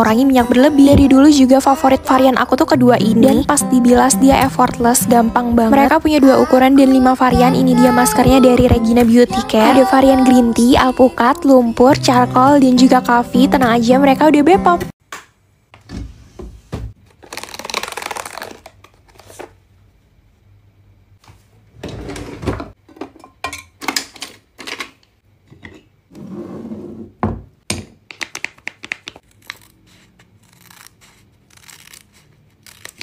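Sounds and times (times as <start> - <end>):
scissors cutting a sachet: 29.2 - 29.8, 30.4 - 33.0.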